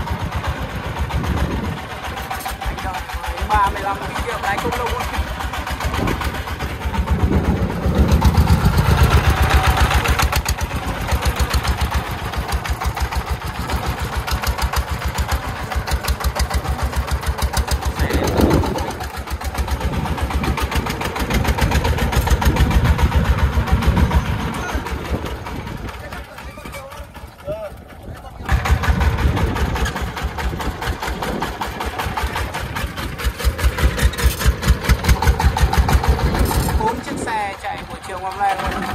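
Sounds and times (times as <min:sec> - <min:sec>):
diesel truck engine chugging: 0:00.0 - 0:38.9.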